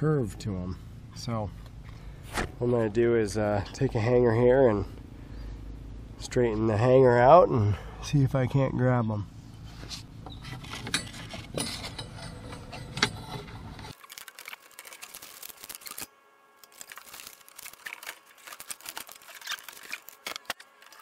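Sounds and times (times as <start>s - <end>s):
wire hanger clicking and scraping: 10.4s - 21.0s.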